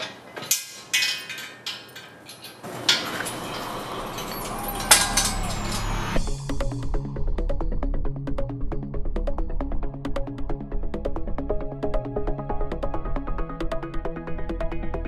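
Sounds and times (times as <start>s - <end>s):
clanking steel parts: 0.0s - 6.2s
music: 3.6s - 15.0s.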